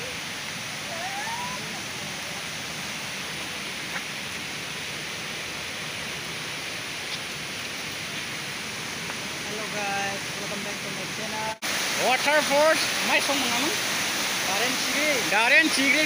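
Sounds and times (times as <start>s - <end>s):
waterfall rushing: 0.0s - 16.0s
faint short rising call: 0.8s - 1.8s.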